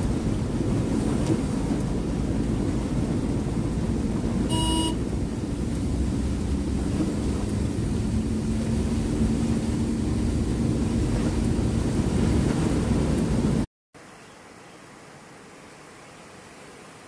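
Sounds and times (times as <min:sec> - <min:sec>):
vehicle driving on waterlogged road: 0:00.0 - 0:17.0
vehicle horn toot: 0:04.5 - 0:05.0.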